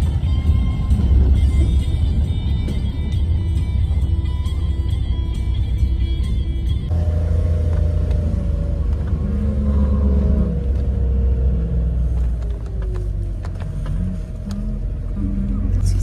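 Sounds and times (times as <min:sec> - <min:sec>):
background music: 0:00.0 - 0:07.0
car driving rumble: 0:00.0 - 0:16.0.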